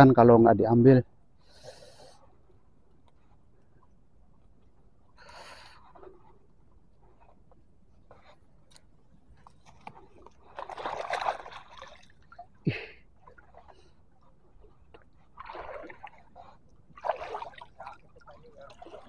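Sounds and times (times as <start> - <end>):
pond water splashing: 9.6 - 19.0.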